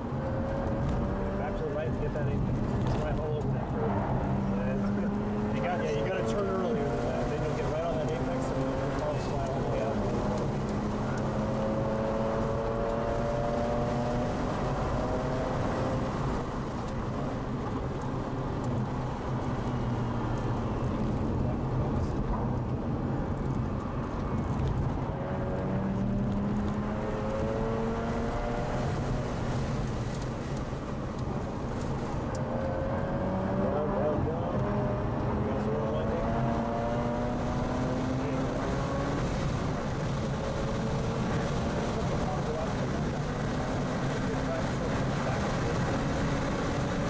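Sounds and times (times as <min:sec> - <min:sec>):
road and wind noise: 0:00.0 - 0:47.0
engine revving hard: 0:34.7 - 0:39.1.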